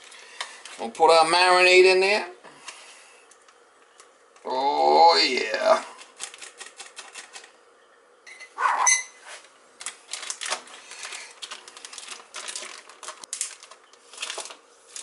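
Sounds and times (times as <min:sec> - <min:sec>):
plastic zip bag crinkling: 0:09.8 - 0:15.0.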